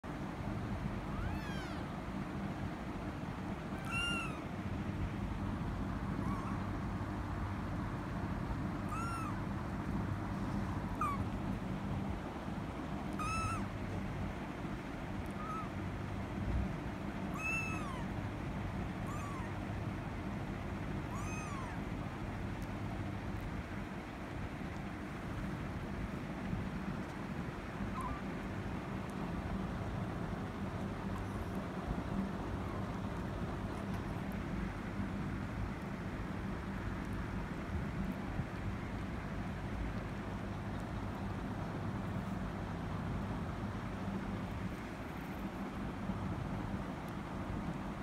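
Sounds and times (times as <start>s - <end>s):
steady low hum: 0.0s - 48.0s
kitten mewing: 1.0s - 1.9s, 3.6s - 4.5s, 6.0s - 6.8s, 8.8s - 9.6s, 10.8s - 11.4s, 13.1s - 13.8s, 15.2s - 15.8s, 17.3s - 18.2s, 19.0s - 19.6s, 21.0s - 21.9s, 27.8s - 28.3s.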